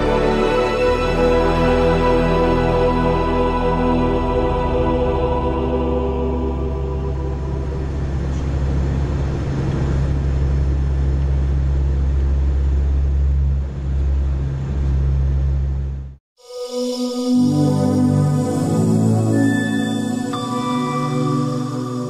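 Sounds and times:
music: 0:00.0 - 0:08.2, 0:16.4 - 0:22.0
aircraft engine drone in cockpit: 0:06.2 - 0:16.2.

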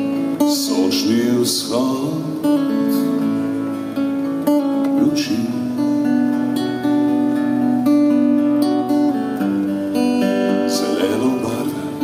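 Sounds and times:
acoustic guitar strumming: 0:00.0 - 0:12.0.

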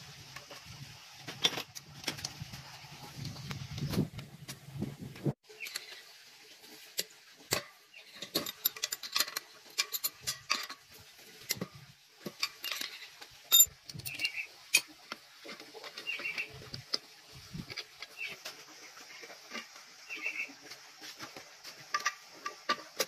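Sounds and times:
metal tools clinking: 0:07.5 - 0:14.9.

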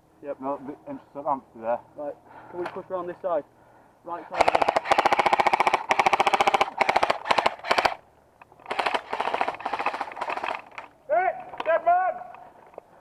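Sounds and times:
airsoft rifle automatic bursts: 0:04.3 - 0:08.0, 0:08.6 - 0:10.8.

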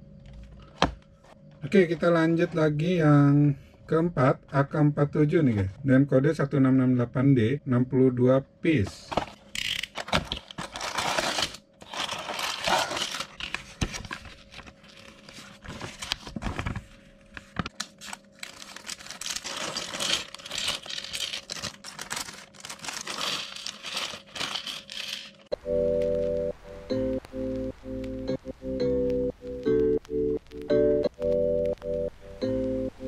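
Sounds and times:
plastic bags crinkling: 0:09.9 - 0:16.8, 0:17.5 - 0:25.5
cardboard box opening: 0:10.0 - 0:16.8
music: 0:25.5 - 0:33.0.

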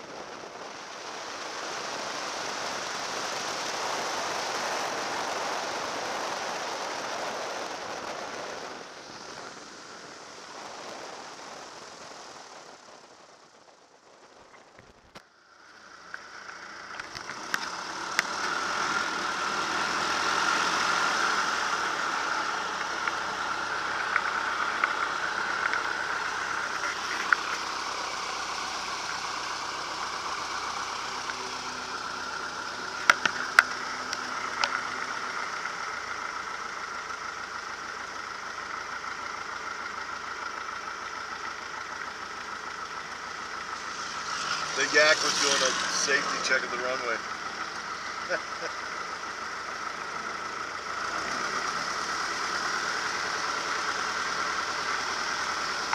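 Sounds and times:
propeller plane engine running: 0:00.0 - 0:55.9
propwash hiss: 0:15.5 - 0:55.9.

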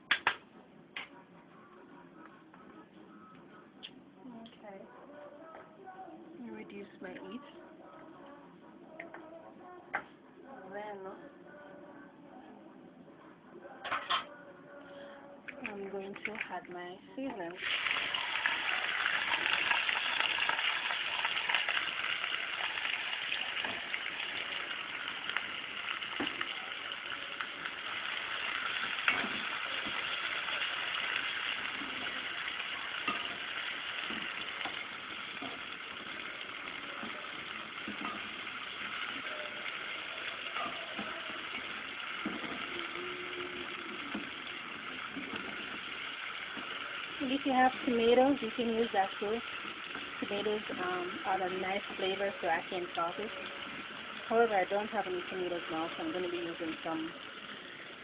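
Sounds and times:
onions sizzling in hot oil: 0:17.5 - 0:58.0.

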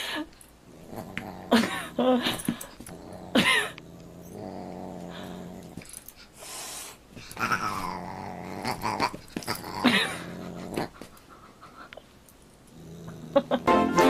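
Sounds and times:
low growling: 0:00.7 - 0:02.2, 0:02.8 - 0:06.0, 0:07.4 - 0:11.0, 0:12.7 - 0:13.7.

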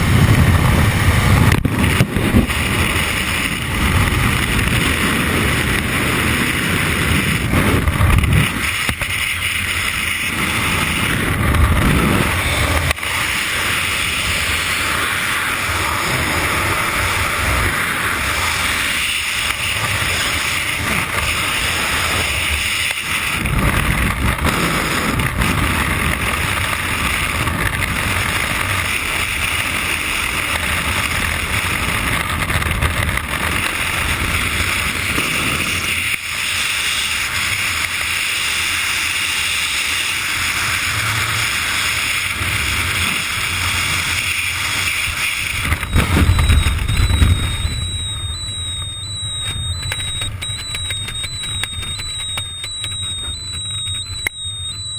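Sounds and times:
wind rushing over microphone: 0:00.0 - 0:35.9, 0:40.7 - 0:54.9
high electronic tone: 0:44.8 - 0:54.9.

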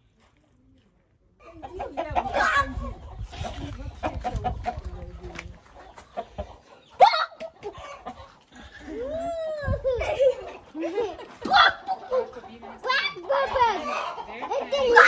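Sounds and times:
chickens clucking: 0:01.3 - 0:15.0
chicken squawking loudly: 0:01.9 - 0:03.0, 0:06.4 - 0:08.2.

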